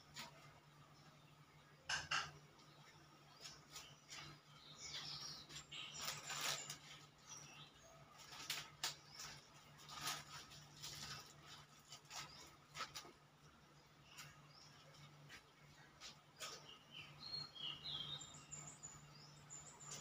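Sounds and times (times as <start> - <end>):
plastic bag rustling: 5.6 - 13.2.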